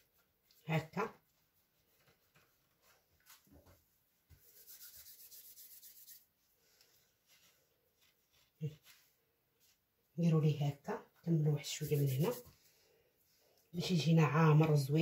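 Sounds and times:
hands rubbing dough: 1.2 - 10.0, 11.3 - 12.9.

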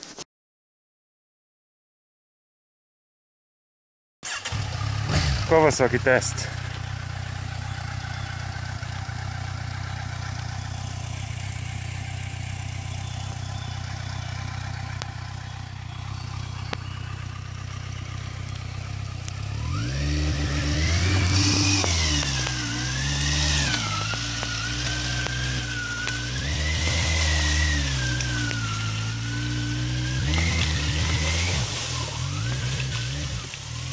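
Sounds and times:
motorcycle engine revving: 4.2 - 33.9.

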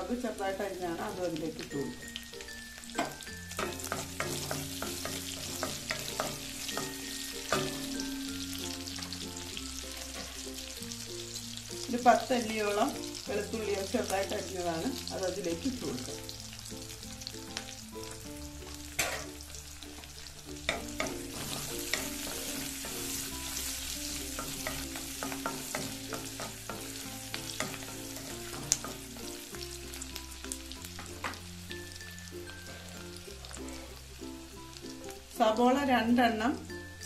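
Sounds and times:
garlic sizzling in hot oil: 0.0 - 37.0
spatula knocking against pan: 3.0 - 8.0.

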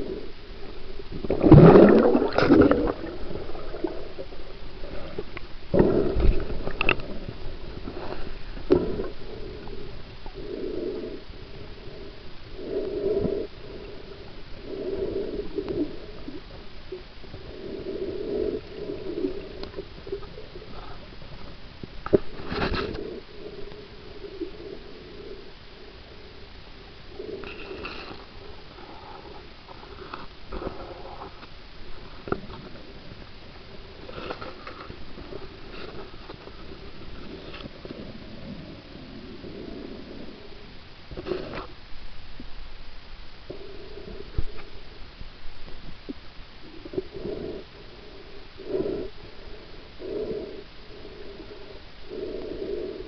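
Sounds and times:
muffled underwater water surges: 0.0 - 53.0.

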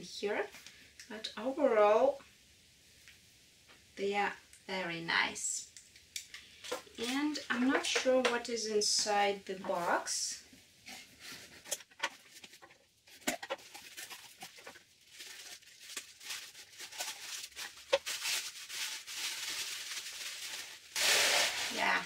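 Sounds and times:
paper and bubble wrap crinkling: 10.8 - 22.0
packing tape peeling off cardboard: 13.3 - 21.8.

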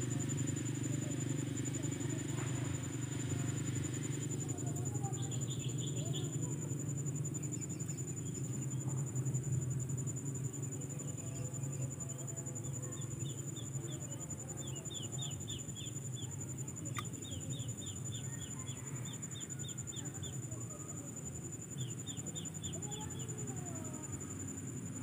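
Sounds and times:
high-pitched insect drone: 0.0 - 25.0
sharp click: 16.9 - 17.2.

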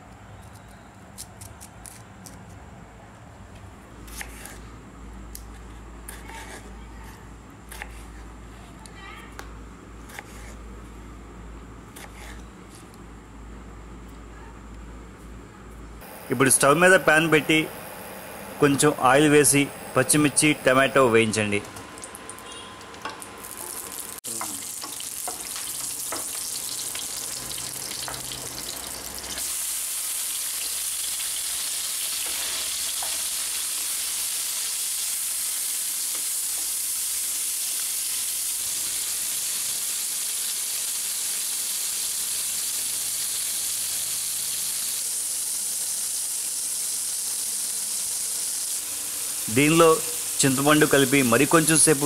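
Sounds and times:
vegetables sizzling in oil: 21.8 - 52.0.

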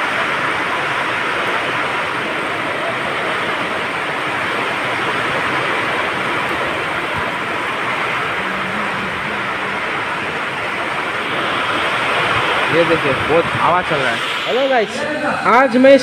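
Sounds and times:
heavy rain pouring: 0.0 - 16.0
wind blowing: 0.0 - 16.0.

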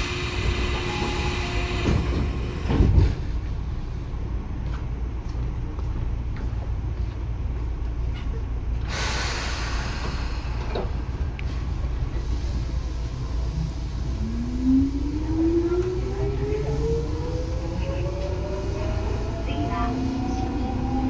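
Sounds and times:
train low rumble: 0.0 - 21.0
air hiss: 8.9 - 11.0.

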